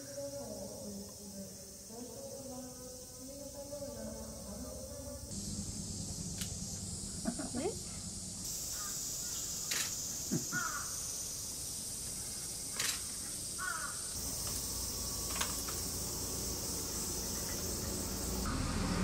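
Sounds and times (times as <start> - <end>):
high-pitched insect drone: 0.0 - 19.0
crow cawing: 8.7 - 9.7, 10.3 - 11.0, 13.6 - 14.2
sharp clicks: 9.7 - 10.0, 12.7 - 13.2.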